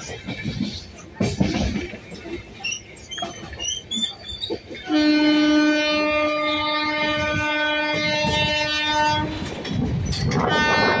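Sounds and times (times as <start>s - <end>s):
wheels clattering over rail joints: 0.0s - 11.0s
train horn blast: 4.8s - 9.5s, 10.4s - 11.0s.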